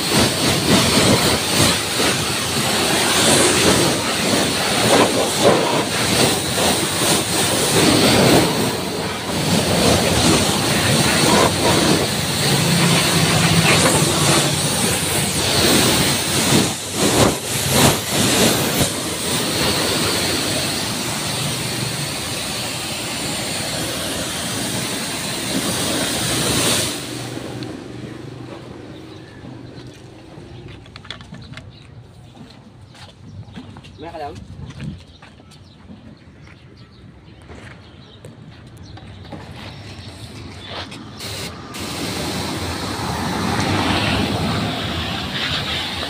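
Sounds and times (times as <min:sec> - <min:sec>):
pressure washer spraying: 0:00.0 - 0:28.0, 0:40.3 - 0:46.0.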